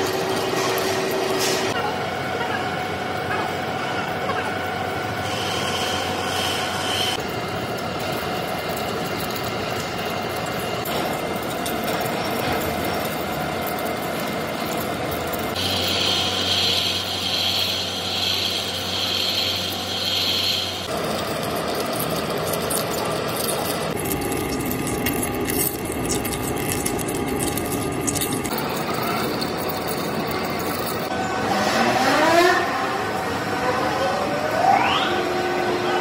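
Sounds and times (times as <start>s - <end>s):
lathe running: 2.8s - 34.6s
high cutting squeal: 15.5s - 20.9s.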